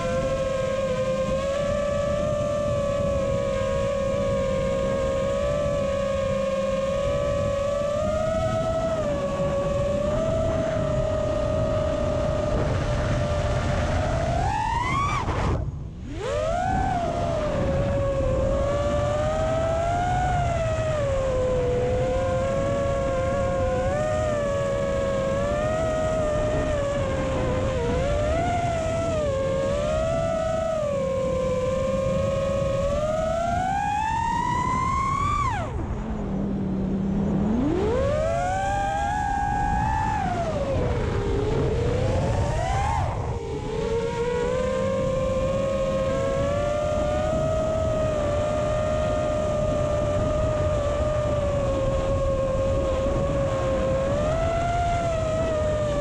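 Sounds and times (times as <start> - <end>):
drone motors whining: 0.0 - 56.0
low wind rumble: 0.0 - 56.0.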